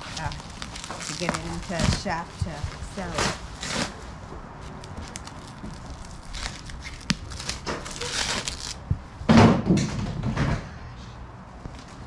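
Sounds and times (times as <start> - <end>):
plastic wrapping rustling: 0.0 - 8.9.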